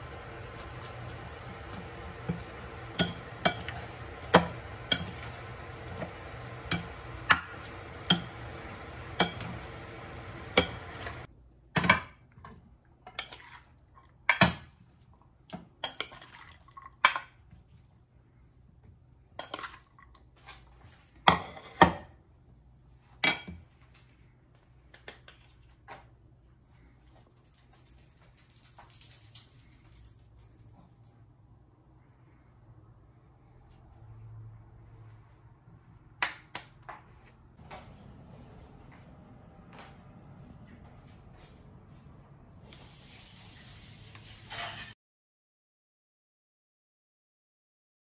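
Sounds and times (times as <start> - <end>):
background hum: 0.0 - 15.9, 37.1 - 43.2
spoon stirring and scraping a bowl: 0.0 - 18.0, 18.8 - 22.2, 44.2 - 45.0.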